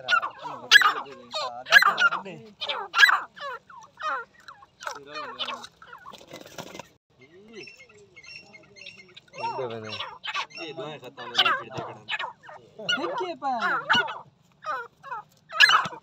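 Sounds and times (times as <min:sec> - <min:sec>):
partridges calling harshly: 0:00.0 - 0:16.0
rustling flurry: 0:04.8 - 0:07.0.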